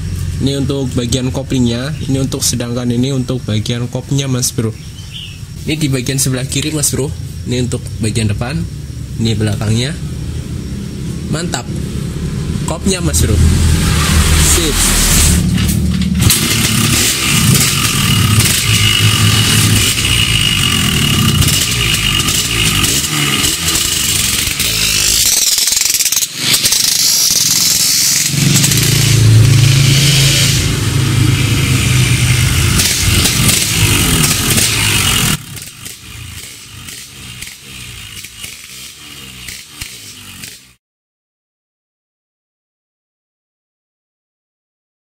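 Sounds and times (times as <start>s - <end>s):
two-stroke motorcycle engine running: 0.0s - 2.4s, 10.0s - 40.8s.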